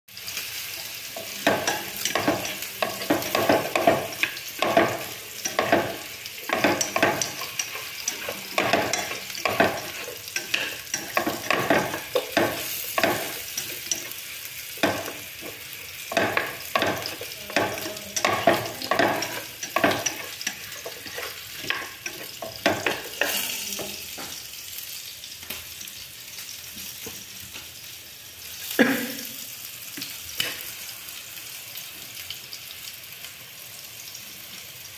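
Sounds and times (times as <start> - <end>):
food sizzling in a pot: 0.1 - 34.9
chopsticks stirring and scraping: 0.8 - 24.0
chopsticks knocking against pot: 1.4 - 14.1, 14.8 - 20.9.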